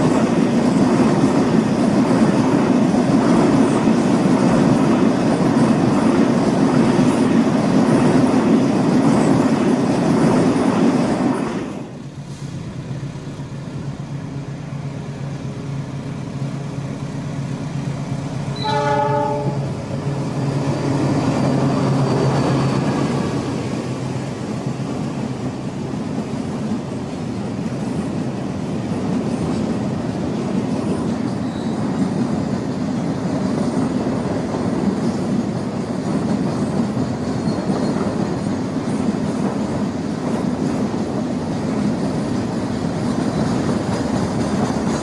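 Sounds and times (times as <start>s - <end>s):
diesel locomotive engine droning: 0.0s - 45.0s
train horn blast: 18.5s - 19.8s.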